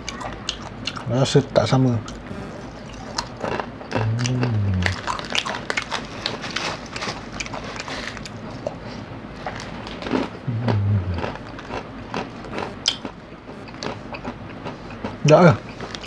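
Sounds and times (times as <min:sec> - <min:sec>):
person chewing: 0:00.0 - 0:01.1, 0:02.0 - 0:16.0
closed-mouth hum: 0:00.0 - 0:06.6, 0:07.2 - 0:16.0
plastic snack packet crinkling: 0:04.9 - 0:08.4.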